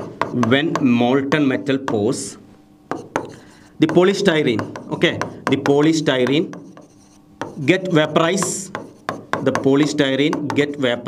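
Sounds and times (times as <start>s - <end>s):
marker writing on whiteboard: 0.0s - 11.0s
man speaking: 3.8s - 6.6s, 7.6s - 8.8s, 9.4s - 11.0s.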